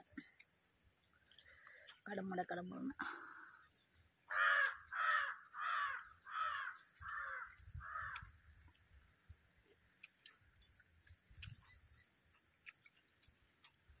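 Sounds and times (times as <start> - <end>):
crow cawing: 4.3 - 8.4.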